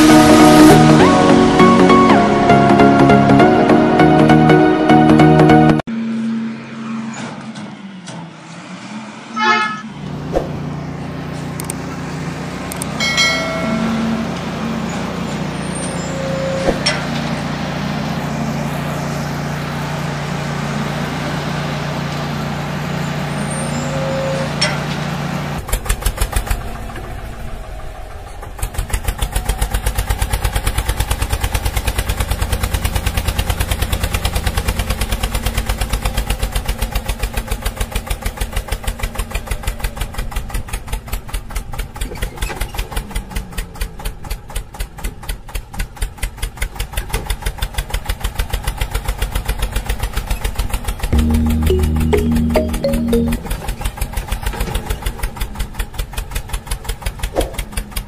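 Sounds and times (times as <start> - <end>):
engine hum: 0.0 - 40.5.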